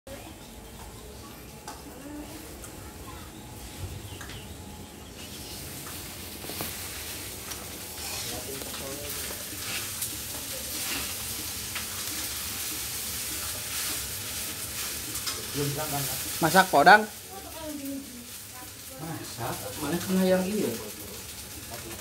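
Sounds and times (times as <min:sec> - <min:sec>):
food sizzling in a pan: 0:05.1 - 0:22.0
spatula scraping a pan: 0:10.7 - 0:11.4.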